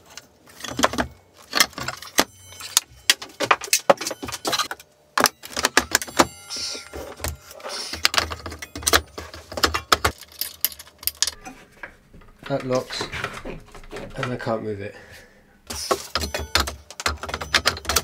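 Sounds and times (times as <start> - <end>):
metal tools clinking and clattering: 0.0 - 11.7, 15.7 - 18.0.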